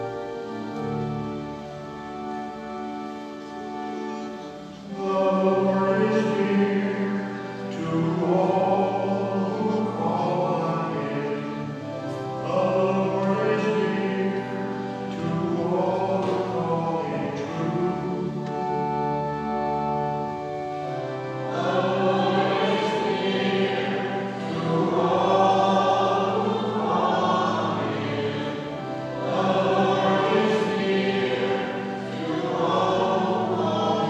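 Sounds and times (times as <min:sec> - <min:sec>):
instrumental sustained chords: 0:00.0 - 0:34.0
man singing: 0:04.9 - 0:18.6, 0:21.5 - 0:34.0.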